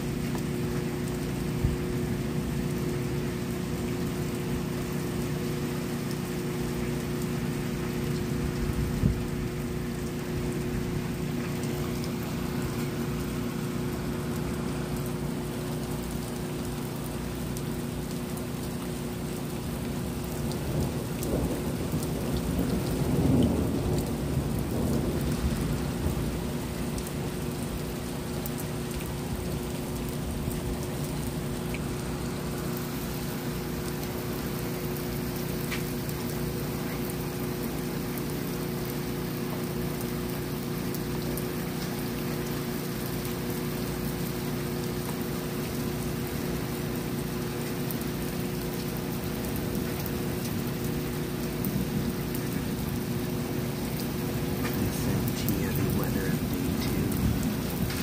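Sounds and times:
steady rain falling: 0:00.0 - 0:58.0
thunder rolling: 0:54.4 - 0:58.0.

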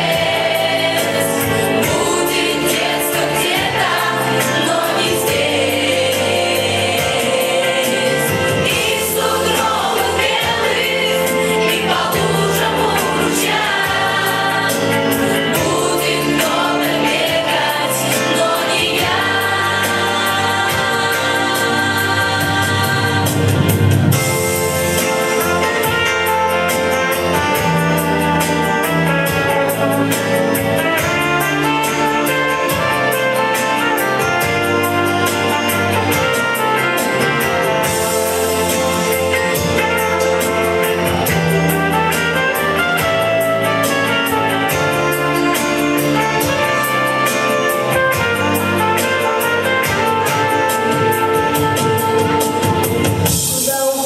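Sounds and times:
song with steady beat: 0:00.0 - 0:54.0
person singing: 0:53.4 - 0:54.0.

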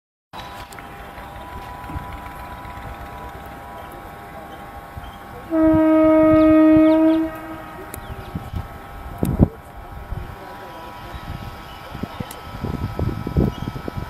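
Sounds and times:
low rumble of rail noise: 0:00.4 - 0:14.0
locomotive horn blast: 0:00.5 - 0:09.0
faint horn-like tones: 0:03.6 - 0:09.0.

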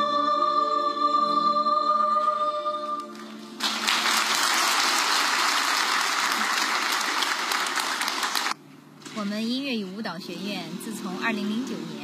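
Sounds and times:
audience applause: 0:03.6 - 0:08.6.

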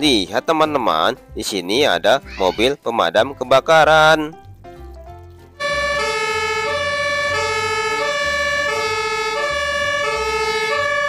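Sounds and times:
two-tone fire engine siren: 0:05.6 - 0:11.0.

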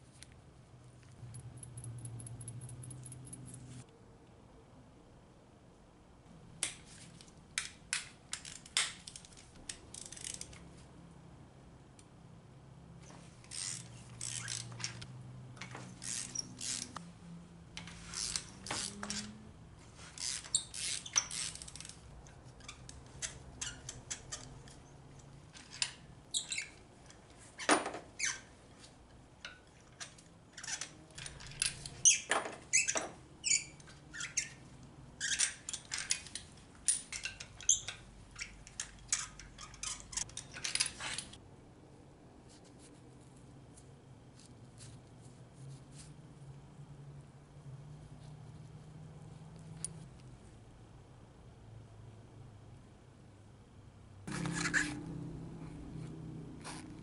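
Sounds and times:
squeaks: 0:15.8 - 0:17.0, 0:20.2 - 0:21.9, 0:22.5 - 0:24.8, 0:25.7 - 0:26.8, 0:28.2 - 0:28.6, 0:30.0 - 0:34.6, 0:35.2 - 0:36.2, 0:37.1 - 0:40.3.

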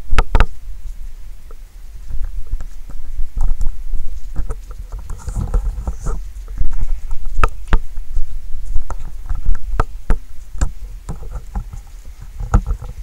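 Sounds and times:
steady low rumble: 0:00.0 - 0:13.0
raindrops tapping hard surface: 0:08.7 - 0:13.0.

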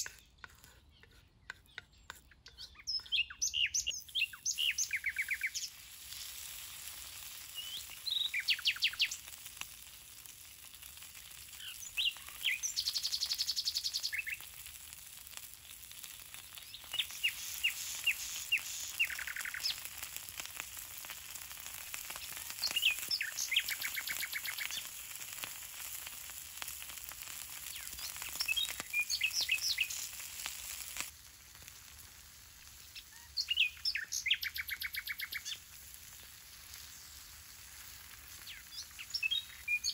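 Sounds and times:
fish sizzling on hot stone: 0:00.0 - 0:00.8, 0:02.8 - 0:39.9
birds chirping and trilling: 0:00.0 - 0:05.7, 0:11.6 - 0:14.4, 0:16.6 - 0:19.8, 0:38.5 - 0:39.9.

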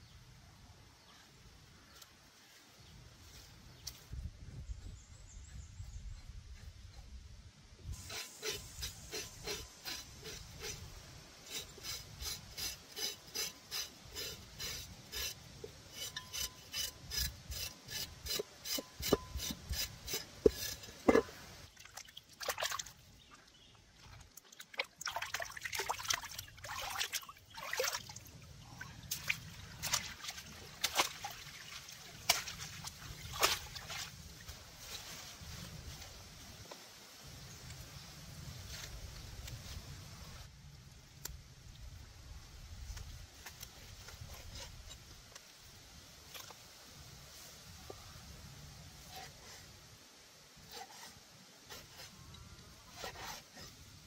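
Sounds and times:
rubbing scraping strokes: 0:08.0 - 0:21.6, 0:52.9 - 0:53.8
sharp knocks and scrapes: 0:11.4 - 0:21.6.

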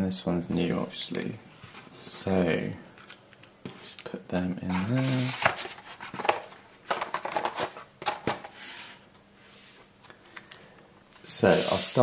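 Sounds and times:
cardboard scraping slide: 0:11.5 - 0:12.0.

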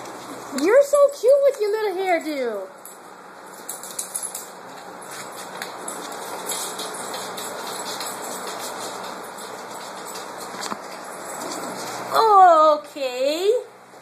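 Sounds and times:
dog claws clicking on wood floor: 0:03.5 - 0:12.1.

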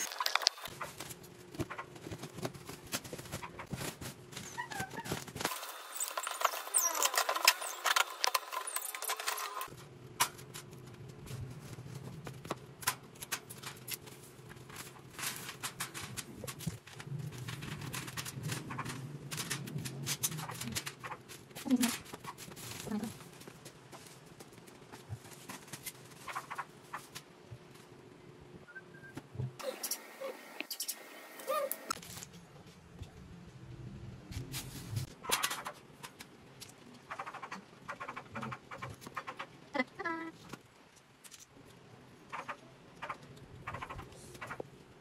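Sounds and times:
plastic wrapping rustling: 0:00.0 - 0:27.9.

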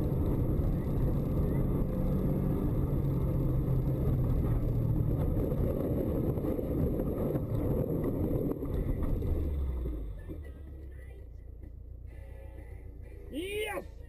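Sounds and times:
car engine inside cabin: 0:00.0 - 0:14.0.

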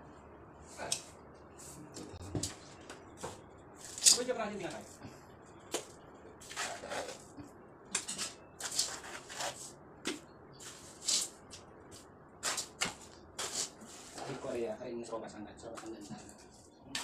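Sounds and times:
trowel scraping mortar: 0:06.4 - 0:07.3, 0:08.0 - 0:09.7, 0:12.4 - 0:14.6.

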